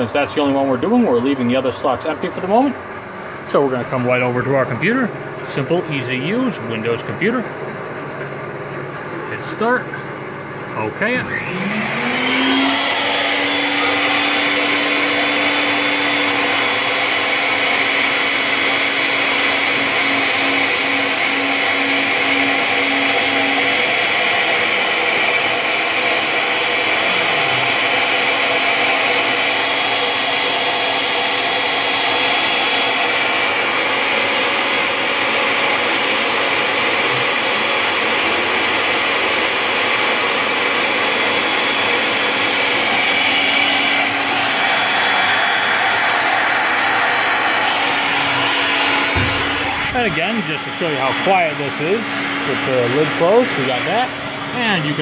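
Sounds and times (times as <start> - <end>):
router spindle whirring: 11.0 - 55.0.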